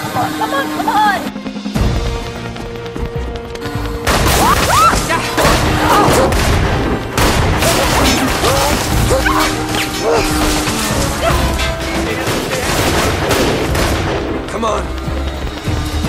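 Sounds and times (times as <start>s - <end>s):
tense sustained music: 0.0s - 16.0s
pistol gunshots: 4.0s - 14.5s.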